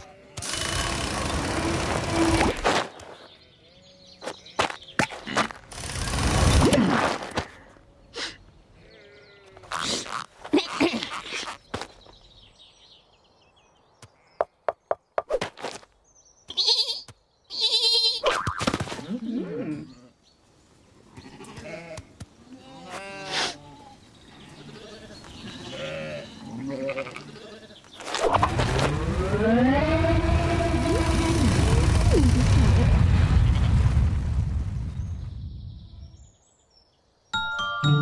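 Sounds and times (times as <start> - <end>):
loud rumbling with rising tone: 28.4 - 35.6.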